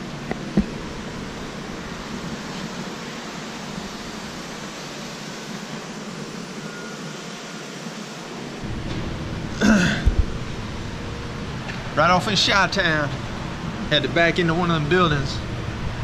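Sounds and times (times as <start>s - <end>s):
warehouse background noise: 0.0s - 16.0s.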